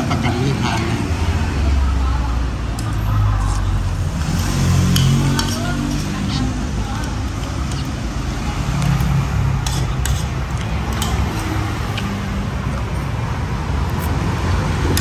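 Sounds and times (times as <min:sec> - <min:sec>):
road traffic rumble: 0:00.0 - 0:15.0
cutlery clicking on plastic bowl: 0:08.8 - 0:12.2.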